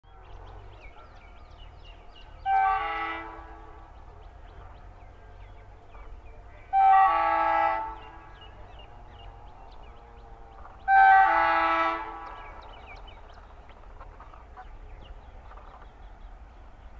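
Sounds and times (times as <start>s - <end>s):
train horn blasts: 2.4s - 3.8s, 6.6s - 8.4s, 10.9s - 12.6s.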